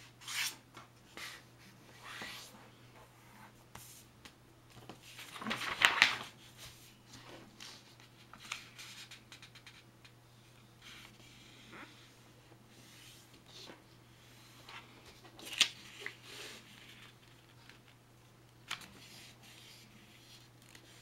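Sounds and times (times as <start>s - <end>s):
paper rustling and creasing: 4.7s - 9.8s
paper crinkles: 5.1s - 6.3s.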